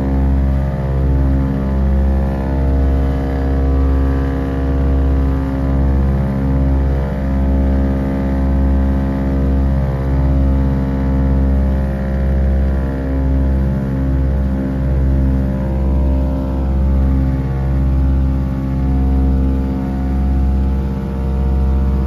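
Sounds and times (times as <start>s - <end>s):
propeller aircraft engines droning: 0.0s - 22.0s.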